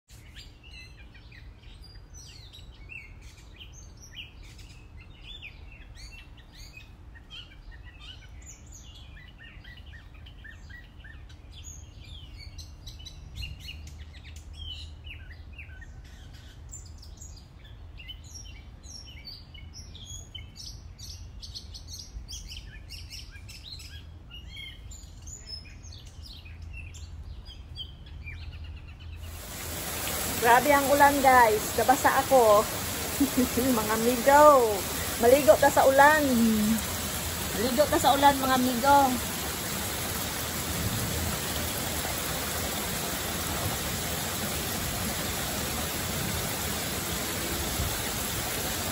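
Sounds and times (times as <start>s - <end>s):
birds chirping: 24.4s - 48.9s.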